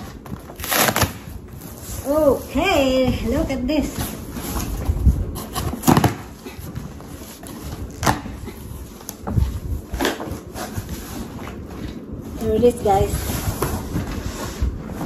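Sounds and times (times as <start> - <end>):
cardboard box tearing: 0.4 - 2.0, 5.4 - 6.4.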